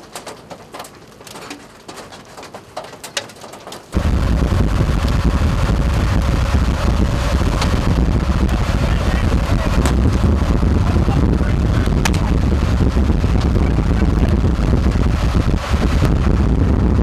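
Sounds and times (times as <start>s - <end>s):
storm wind on microphone: 3.9s - 17.0s
rain ticks: 6.1s - 16.3s.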